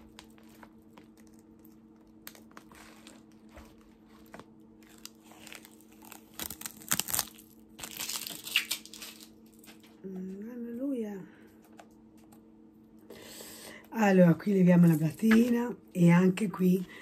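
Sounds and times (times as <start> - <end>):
plastic film crinkling: 0.0 - 9.9.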